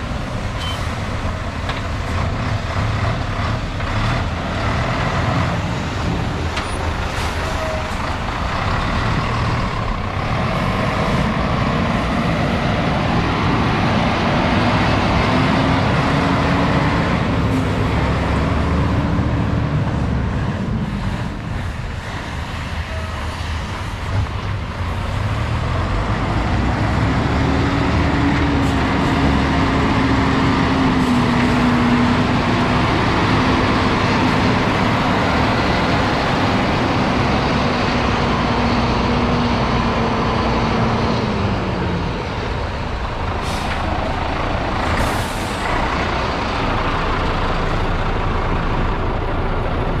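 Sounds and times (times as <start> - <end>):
diesel truck engine running: 0.0 - 50.0
air brake hiss: 43.4 - 43.9, 44.9 - 45.7.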